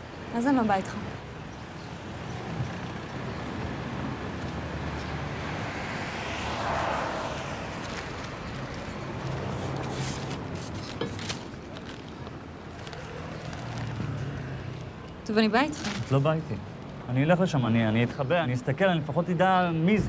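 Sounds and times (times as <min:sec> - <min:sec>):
street traffic hum: 0:00.0 - 0:20.0
car passing by: 0:02.6 - 0:10.7.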